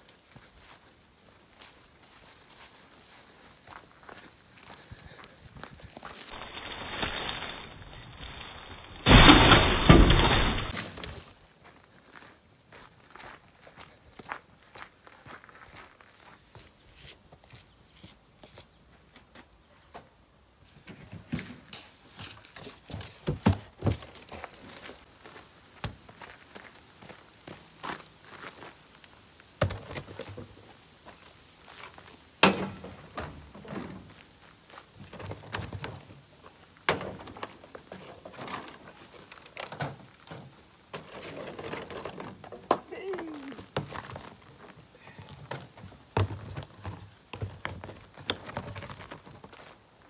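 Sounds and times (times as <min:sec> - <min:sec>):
footsteps on dirt path: 0:00.0 - 0:06.4, 0:10.7 - 0:20.1, 0:21.3 - 0:39.4, 0:43.2 - 0:50.0
plastic bins knocking and thumping: 0:23.1 - 0:24.2, 0:32.4 - 0:34.1.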